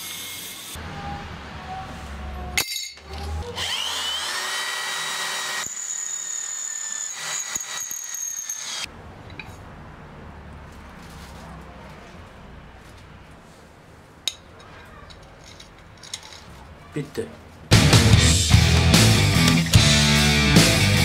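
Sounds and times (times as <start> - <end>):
electric drill whining through sheet metal: 3.0 - 8.9.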